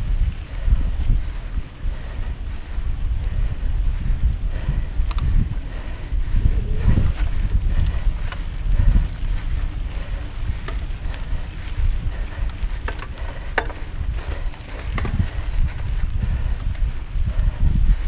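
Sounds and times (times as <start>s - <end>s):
bike clicks and rattles: 0.0s - 18.0s
wind buffeting microphone: 0.0s - 18.0s
tyres on dirt: 4.8s - 17.0s.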